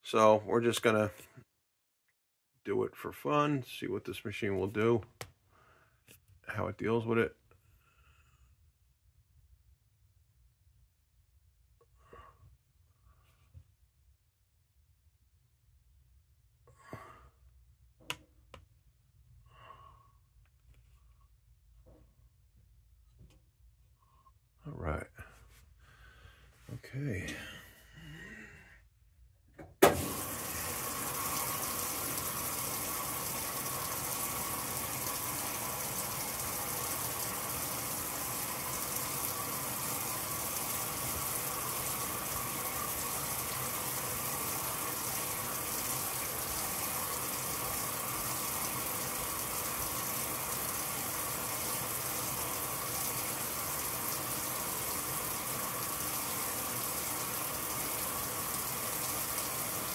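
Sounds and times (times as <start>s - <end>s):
water pouring into washer tub: 29.8s - 59.9s.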